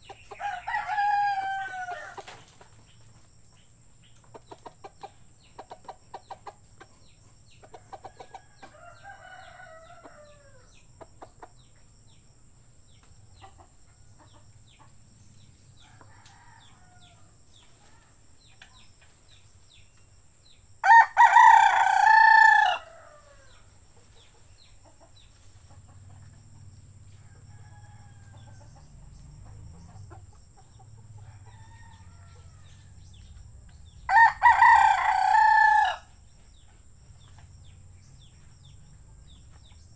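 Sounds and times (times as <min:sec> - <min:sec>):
rooster crowing: 0:00.3 - 0:02.3, 0:08.4 - 0:10.7, 0:15.8 - 0:17.4, 0:20.8 - 0:23.7, 0:27.1 - 0:28.8, 0:31.2 - 0:33.1, 0:34.0 - 0:36.1
faint bird calls and clicks: 0:13.0 - 0:20.1.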